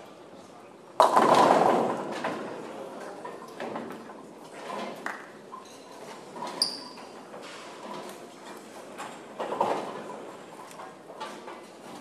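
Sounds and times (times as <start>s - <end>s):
bowling pins and balls clattering: 1.0s - 2.7s.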